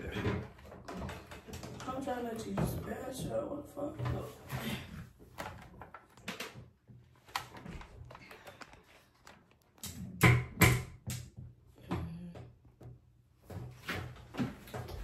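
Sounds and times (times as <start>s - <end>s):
objects clicking and knocking: 0.1s - 2.7s.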